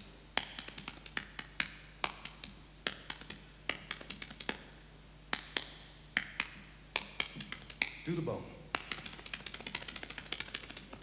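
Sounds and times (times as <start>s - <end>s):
hands slapping body: 0.4s - 4.7s, 5.3s - 8.0s.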